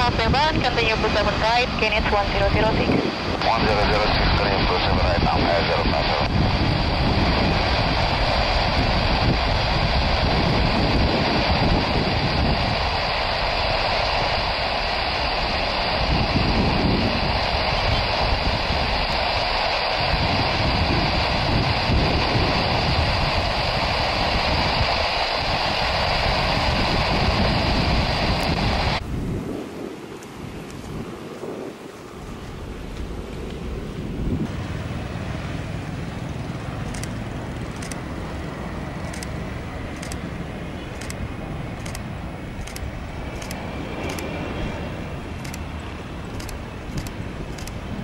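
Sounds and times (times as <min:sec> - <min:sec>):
deep rumble: 0:00.0 - 0:29.6
jet engines roaring: 0:00.0 - 0:48.0.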